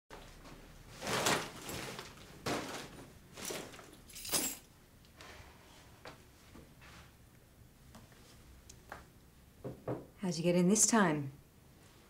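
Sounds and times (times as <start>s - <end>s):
plastic bags rustling: 0.4s - 4.6s.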